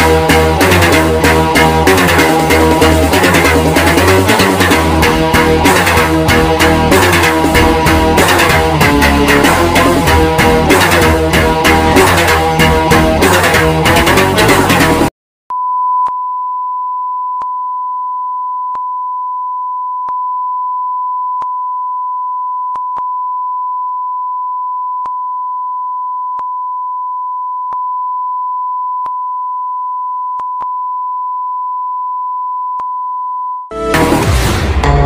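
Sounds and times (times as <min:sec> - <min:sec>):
background music: 0:00.0 - 0:15.1, 0:33.7 - 0:35.0.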